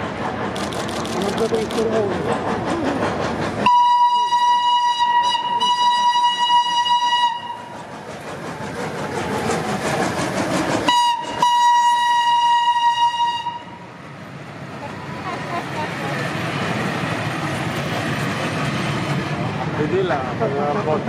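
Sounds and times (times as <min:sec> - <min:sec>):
locomotive exhaust chuffing: 0:00.0 - 0:13.7
train coaches rolling: 0:00.0 - 0:21.0
steam locomotive whistle blasts: 0:03.6 - 0:07.7, 0:10.9 - 0:13.8.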